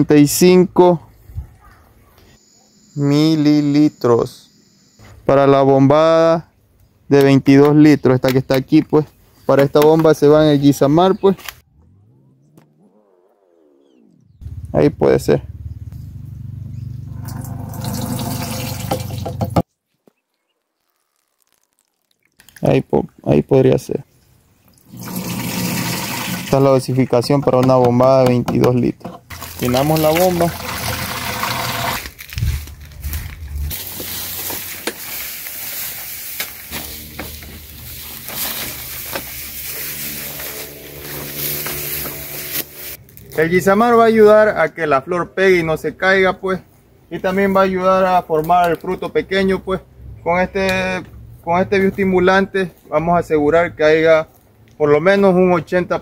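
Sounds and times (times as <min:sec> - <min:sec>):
liquid pouring into plastic cup: 0:20.8 - 0:22.6.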